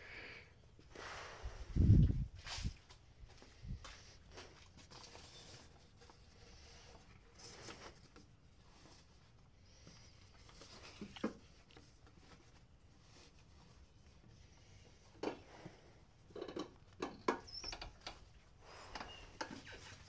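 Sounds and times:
faint rustling and handling: 0:00.6 - 0:20.0.

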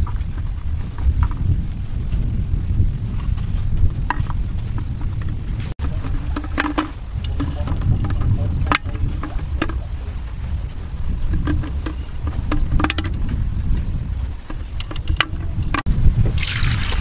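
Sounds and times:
steady low rumble: 0:00.0 - 0:17.0
eggs clicking against a clay pot: 0:04.1 - 0:10.6, 0:11.2 - 0:13.4
water pouring into a pot: 0:16.4 - 0:17.0.

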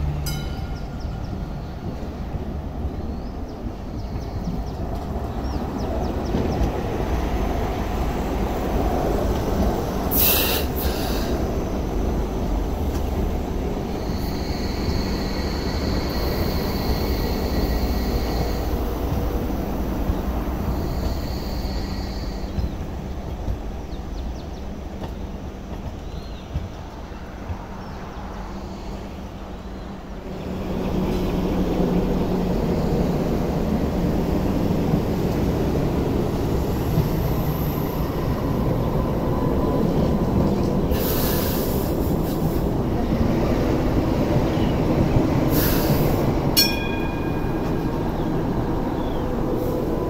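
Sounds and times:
light rail train rumbling: 0:00.0 - 0:50.0.

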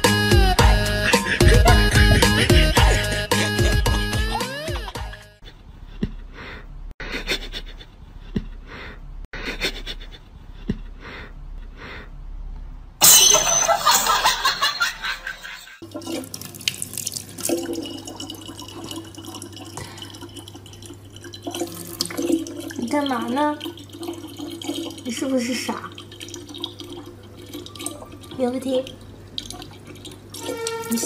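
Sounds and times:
tap water trickling into bottle: 0:16.0 - 0:25.1, 0:25.8 - 0:31.0.

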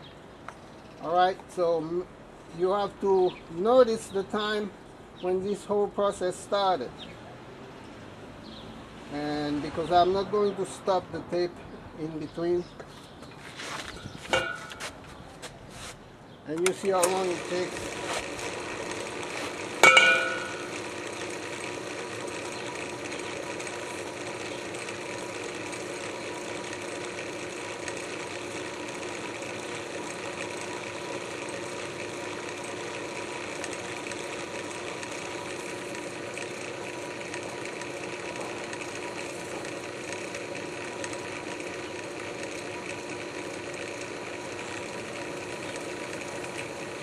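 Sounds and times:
sharp metallic clank: 0:14.3 - 0:14.9, 0:19.8 - 0:20.8
drill press mechanical hum: 0:16.6 - 0:47.0.

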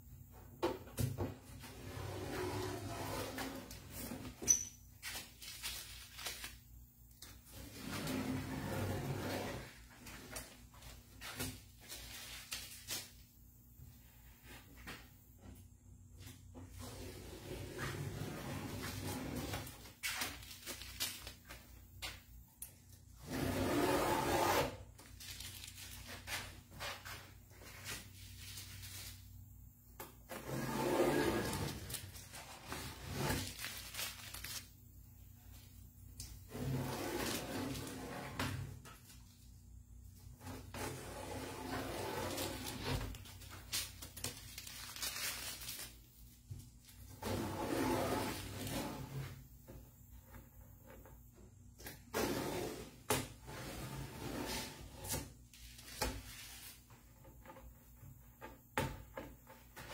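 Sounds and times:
tape crinkling: 0:05.0 - 0:06.7, 0:20.0 - 0:21.7, 0:25.0 - 0:26.5, 0:33.3 - 0:34.8, 0:42.3 - 0:46.4.

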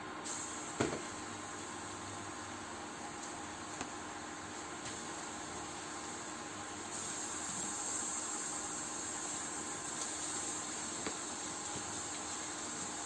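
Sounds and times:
steady hiss: 0:00.0 - 0:13.0.

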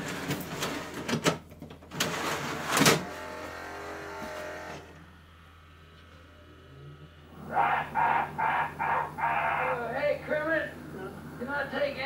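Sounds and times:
disc player mechanism running: 0:00.0 - 0:06.2.

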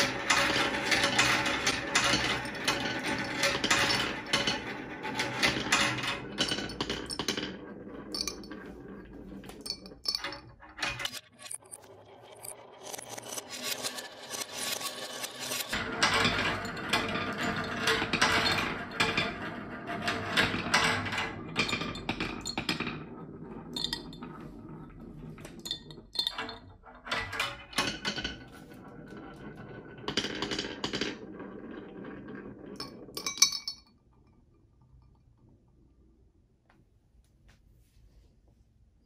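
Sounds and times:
marbles rolling on wooden run: 0:00.0 - 0:35.5
marbles clinking against glass: 0:05.4 - 0:15.8, 0:23.7 - 0:24.3, 0:32.8 - 0:33.9.

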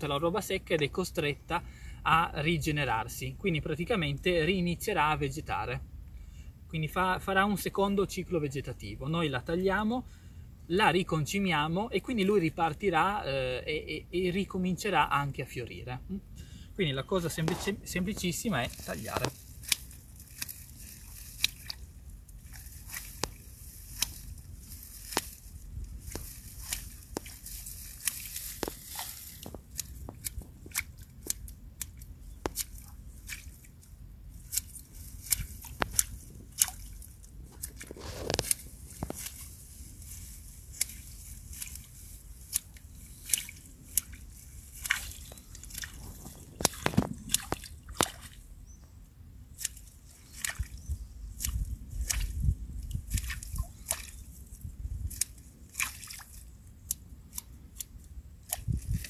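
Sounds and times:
water dripping and sloshing: 0:18.7 - 0:24.3, 0:41.5 - 0:48.5, 0:53.0 - 0:54.2, 0:55.7 - 0:56.4
scissors snipping plant stems: 0:22.5 - 0:24.3, 0:26.1 - 0:33.5, 0:34.4 - 0:36.9, 0:37.5 - 0:39.5.

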